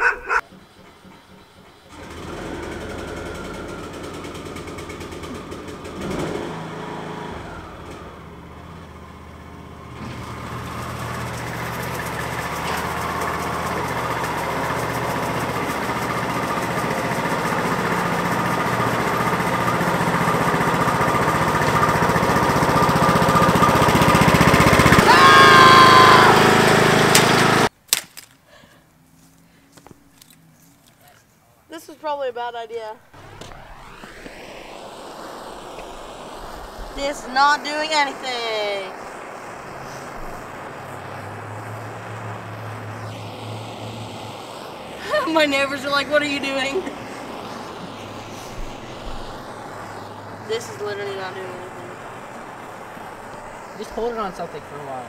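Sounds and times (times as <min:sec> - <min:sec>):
engine running: 0:00.0 - 0:27.7, 0:32.8 - 0:55.0
rising squeal: 0:19.8 - 0:27.1, 0:33.0 - 0:54.7.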